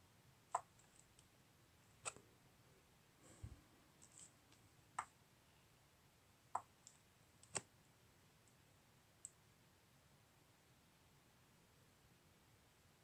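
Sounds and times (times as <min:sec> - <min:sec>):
faint irregular clicks: 0:00.5 - 0:01.3, 0:04.0 - 0:05.2, 0:06.6 - 0:07.7, 0:09.2 - 0:09.4.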